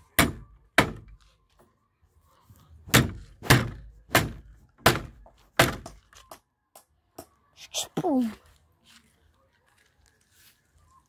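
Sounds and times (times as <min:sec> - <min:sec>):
adze hammering nail into wood: 0:02.9 - 0:06.0.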